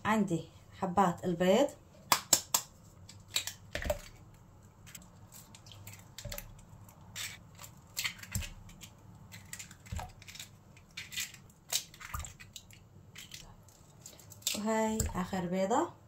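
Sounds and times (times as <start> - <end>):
eggshells cracking on bowl rim: 5.4 - 14.6.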